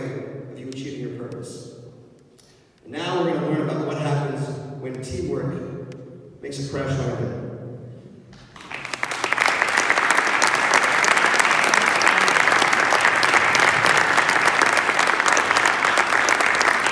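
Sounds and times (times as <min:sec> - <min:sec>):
audience applauding: 0:08.4 - 0:16.9.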